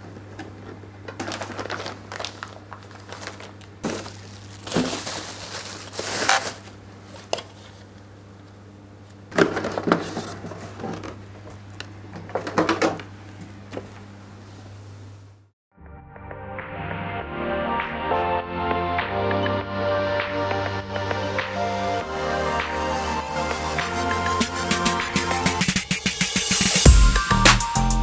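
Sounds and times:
plastic bags crinkling: 1.0 - 7.9.

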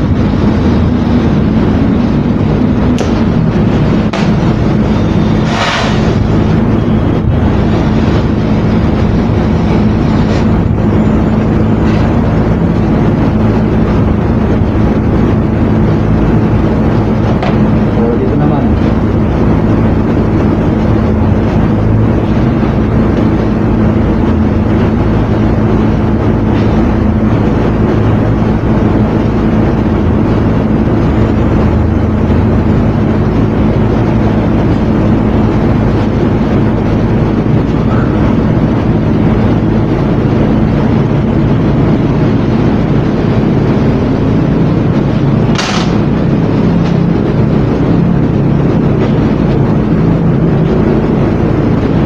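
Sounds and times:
constant low hum: 0.0 - 52.0
gas torch flame roaring: 0.0 - 52.0
sharp burst: 45.5 - 46.3.

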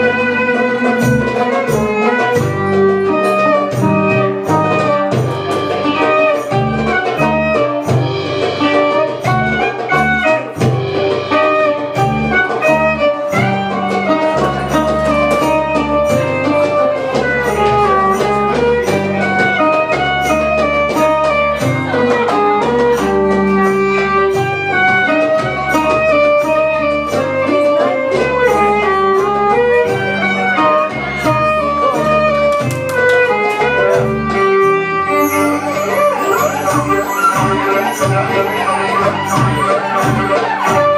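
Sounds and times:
plucked mandolin and guitar: 0.0 - 24.4, 25.1 - 40.9
violin melody: 0.0 - 40.9
steady beat: 33.3 - 40.9.

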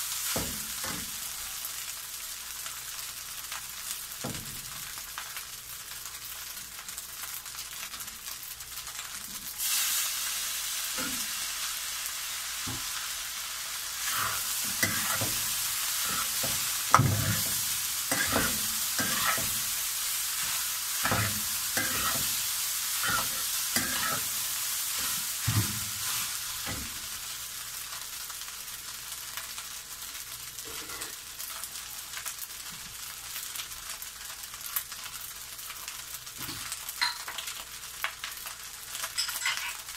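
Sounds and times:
rice sizzling in a wok: 0.0 - 39.9
metal spatula scraping a wok: 14.0 - 19.8, 20.4 - 26.4, 30.7 - 31.2, 39.2 - 39.9.

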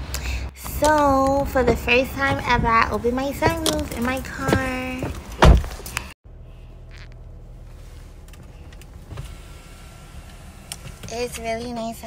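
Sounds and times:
sunroof motor humming: 6.3 - 11.6.

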